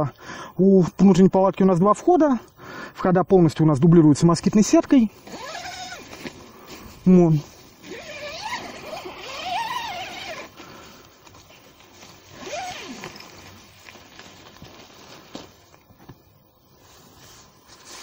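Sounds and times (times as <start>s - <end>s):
tent zipper rasping: 5.2s - 7.0s, 7.7s - 10.8s, 12.2s - 13.6s
fabric handling: 5.2s - 16.1s.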